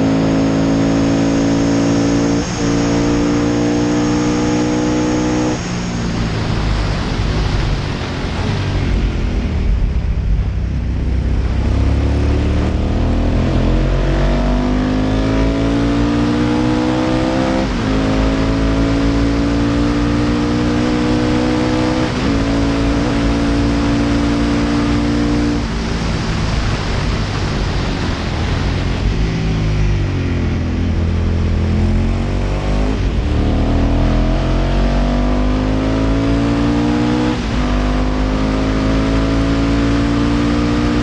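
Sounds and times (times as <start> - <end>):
motorcycle engine accelerating: 0.0 - 41.0
wind rush: 5.0 - 15.3, 19.9 - 41.0.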